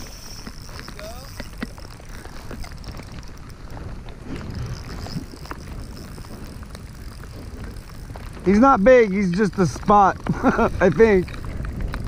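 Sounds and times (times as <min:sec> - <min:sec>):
wind rumbling on microphone: 0:00.0 - 0:12.0
small ticks and taps: 0:09.2 - 0:12.0.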